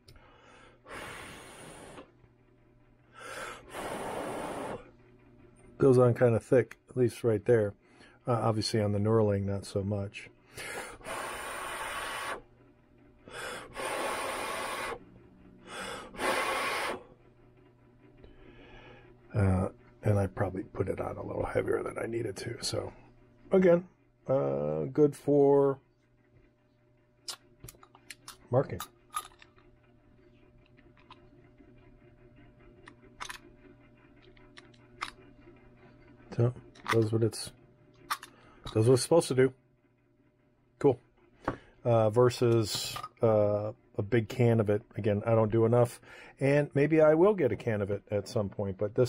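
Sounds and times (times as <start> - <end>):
steady low hum: 0.0 - 49.0
person blowing air: 0.3 - 2.1, 3.2 - 4.9, 10.6 - 12.5, 13.3 - 17.1.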